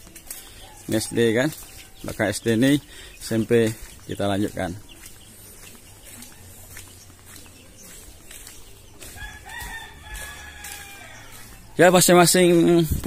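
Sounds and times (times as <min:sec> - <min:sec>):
footsteps on concrete: 0:00.0 - 0:13.0
rooster crowing: 0:09.1 - 0:11.6.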